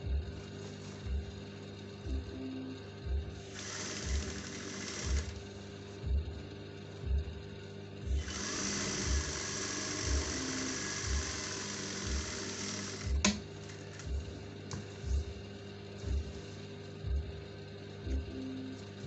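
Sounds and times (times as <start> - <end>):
background music with slow beat: 0.0 - 19.0
sewing machine stitching: 3.5 - 5.4, 8.2 - 13.4.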